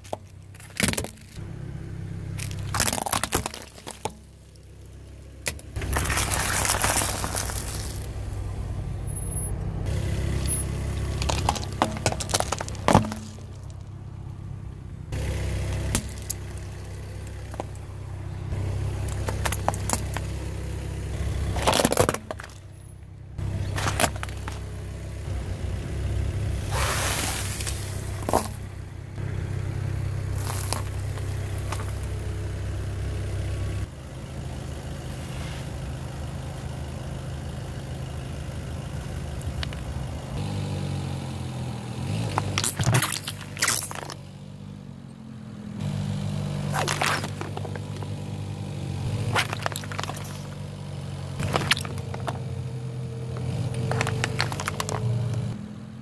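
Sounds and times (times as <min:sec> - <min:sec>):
tyre crushing objects: 0:00.0 - 0:01.4, 0:02.4 - 0:04.4, 0:05.5 - 0:08.1, 0:10.2 - 0:13.9, 0:15.2 - 0:16.6, 0:19.0 - 0:20.4, 0:21.2 - 0:22.7, 0:23.6 - 0:24.7, 0:26.8 - 0:28.6, 0:30.4 - 0:32.1, 0:42.2 - 0:44.2, 0:46.5 - 0:50.6, 0:51.4 - 0:52.6, 0:53.3 - 0:55.6
car engine running: 0:00.0 - 0:56.0.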